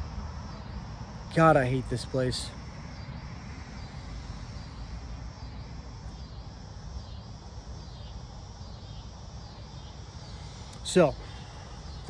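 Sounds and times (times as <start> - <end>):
high-pitched insect chirping: 0.0 - 12.0
low steady rumble: 0.0 - 12.0.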